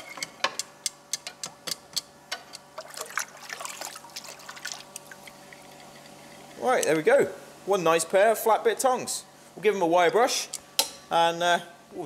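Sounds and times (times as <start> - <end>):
water trickling and dripping: 2.8 - 6.6.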